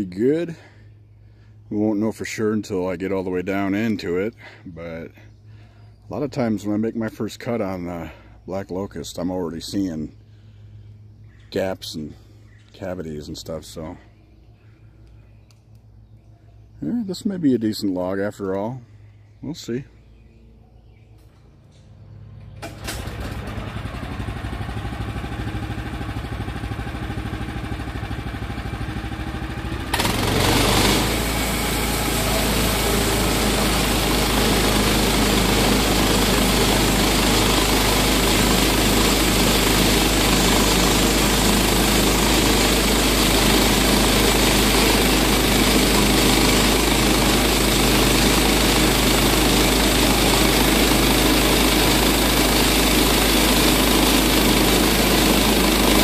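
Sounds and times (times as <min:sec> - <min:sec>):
sawmill gas engine running: 0:00.0 - 0:11.0, 0:21.9 - 0:56.0
band saw cutting log: 0:29.6 - 0:56.0.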